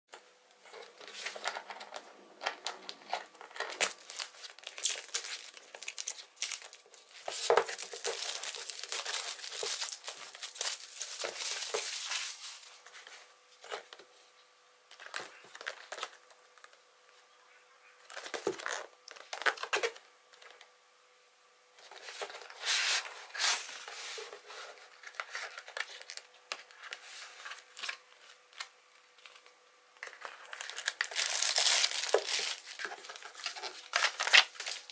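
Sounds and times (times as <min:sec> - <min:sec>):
plastic wrap crinkling and tearing: 0:01.0 - 0:12.7, 0:25.0 - 0:34.9.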